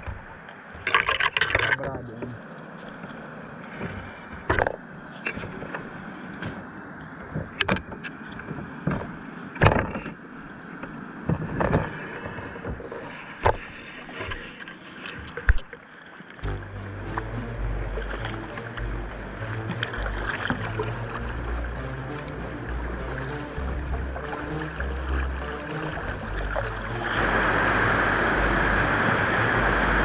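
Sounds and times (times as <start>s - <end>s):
kayak paddle splashing: 11.7s - 30.0s
fast river rushing: 16.4s - 30.0s.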